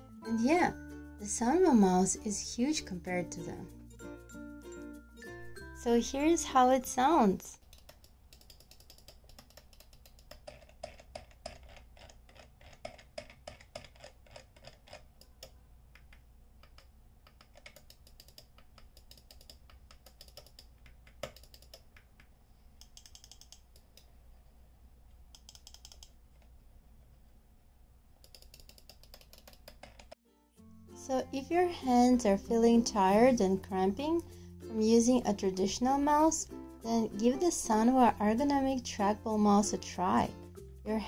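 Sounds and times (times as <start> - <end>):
trackball mouse clicking: 7.6 - 24.2, 25.2 - 26.5, 28.2 - 30.2.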